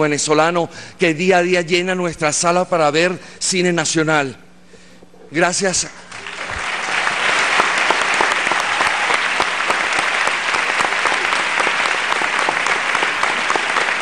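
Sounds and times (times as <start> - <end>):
audience applauding: 6.1 - 14.0.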